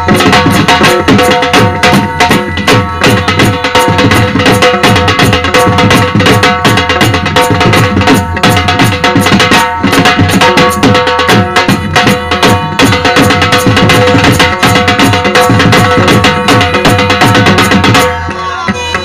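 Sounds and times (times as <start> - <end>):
held melodic tone: 0.0 - 5.8
fast drumming: 0.0 - 19.0.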